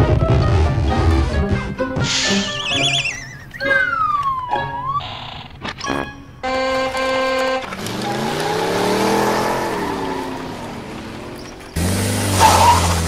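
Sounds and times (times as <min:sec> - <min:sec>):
car engine revving: 0:06.5 - 0:13.0.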